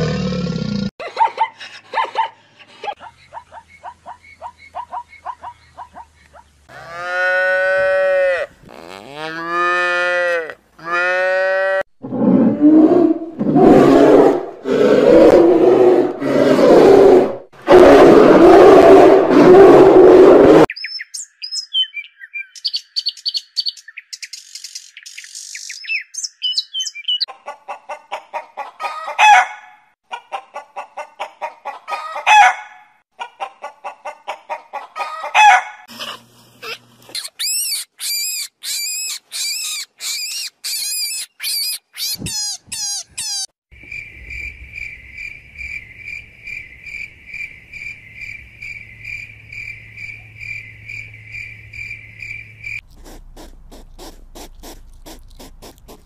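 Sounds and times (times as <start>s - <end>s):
chickens clucking: 27.3s - 29.4s, 30.1s - 32.5s, 33.2s - 36.8s
high chirping: 37.1s - 43.5s
cricket chirping trill: 43.7s - 52.8s.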